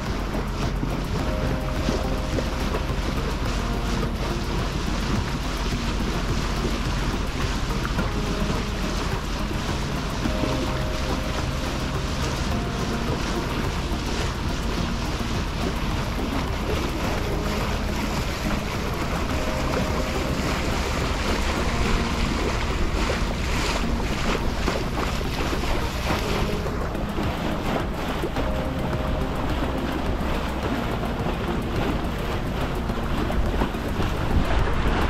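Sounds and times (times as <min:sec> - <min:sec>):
steady low hum: 0:00.0 - 0:35.0
water rushing past hull: 0:00.0 - 0:35.0
wind buffeting microphone: 0:00.0 - 0:35.0.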